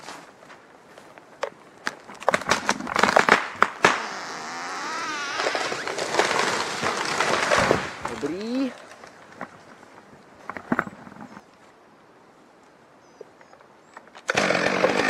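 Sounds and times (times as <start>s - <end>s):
tree trunk cracking and snapping: 1.8s - 9.4s
branches rushing through tree crowns: 1.8s - 10.1s
wavering creak: 2.9s - 7.7s.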